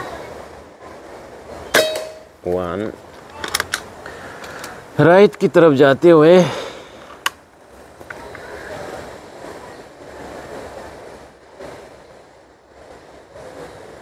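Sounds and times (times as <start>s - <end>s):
air rifle action clicking: 3.2s - 5.4s, 7.1s - 7.4s.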